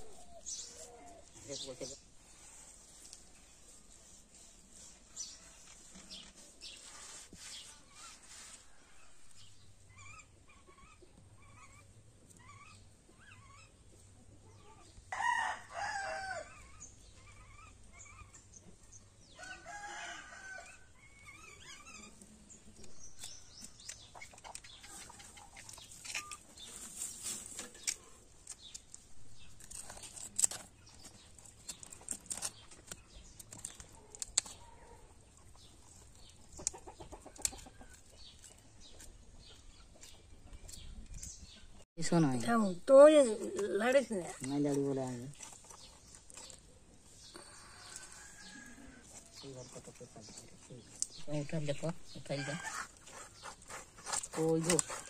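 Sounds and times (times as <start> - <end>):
small birds chirping: 0.0 - 15.1, 15.8 - 55.0
blade scraping fish scales: 1.5 - 9.2, 52.6 - 55.0
rooster crowing: 15.1 - 16.5, 19.4 - 20.9.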